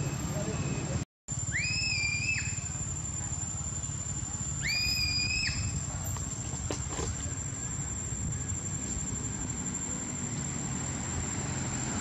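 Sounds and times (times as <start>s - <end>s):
monkey cry: 1.5s - 2.7s, 4.5s - 5.9s.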